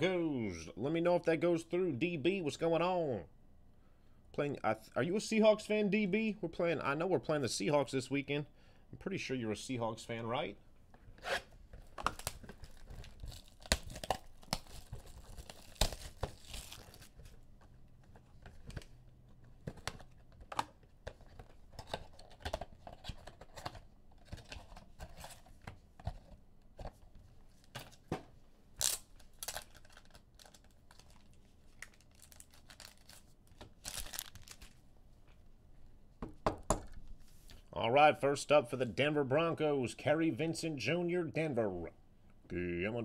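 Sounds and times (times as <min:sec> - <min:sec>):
cards and packaging clicking: 0:11.8 - 0:27.0, 0:28.8 - 0:34.8
wrappers ripping and crinkling: 0:12.0 - 0:17.4, 0:28.8 - 0:34.8.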